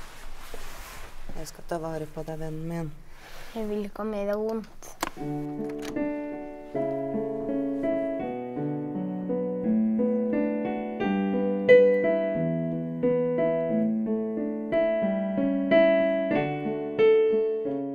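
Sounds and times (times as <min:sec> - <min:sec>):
slow gentle piano music: 0:05.1 - 0:17.9.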